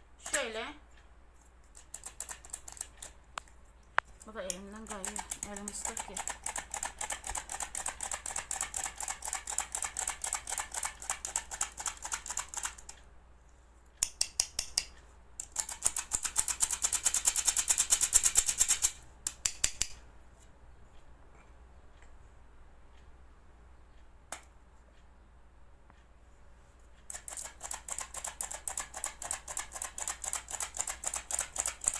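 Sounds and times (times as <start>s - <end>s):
flour sifter clicking and rasping: 1.4s - 13.0s, 14.0s - 20.0s, 27.0s - 31.9s.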